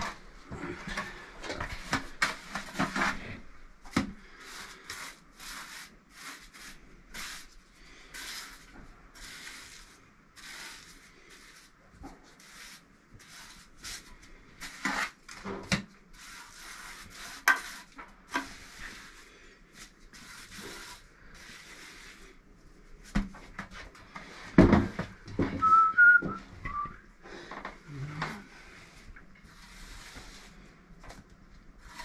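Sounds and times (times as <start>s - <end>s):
trowel scraping mortar: 4.3s - 7.5s, 8.1s - 11.7s, 12.3s - 15.4s, 16.1s - 22.4s, 31.8s - 32.0s
person whistling: 25.6s - 27.0s.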